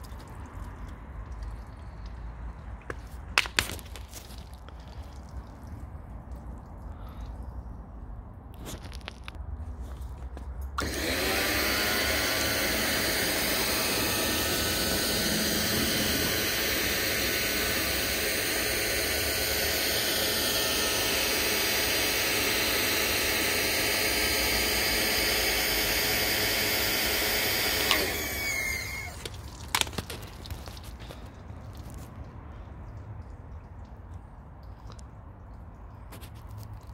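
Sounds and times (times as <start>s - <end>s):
electric motor whining: 10.8s - 29.3s.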